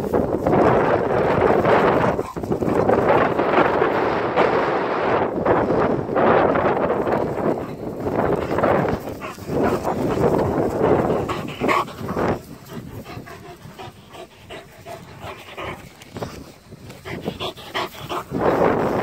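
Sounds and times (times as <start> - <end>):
dogs panting: 0.6 - 3.6, 7.0 - 19.0.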